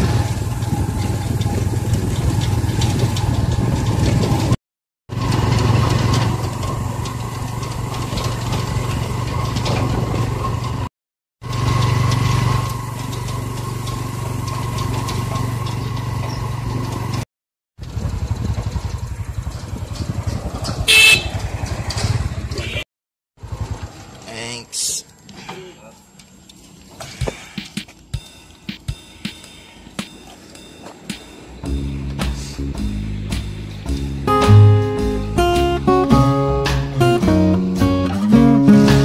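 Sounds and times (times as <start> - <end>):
motorcycle engine running: 0.0 - 17.2, 17.8 - 22.8, 23.4 - 24.2, 30.5 - 39.0
road and wind noise: 0.0 - 17.2, 17.8 - 29.0, 29.6 - 39.0
short horn beep: 20.9 - 21.4.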